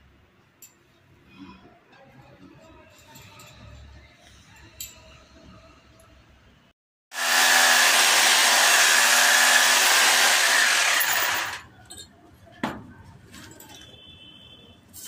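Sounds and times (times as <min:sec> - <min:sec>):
electric drill boring: 0:07.1 - 0:11.6.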